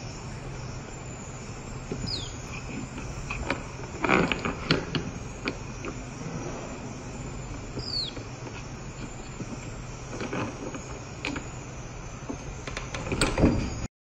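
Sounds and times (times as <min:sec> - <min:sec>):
high falling chirp: 0:00.0 - 0:10.1
steady background hum: 0:00.0 - 0:13.9.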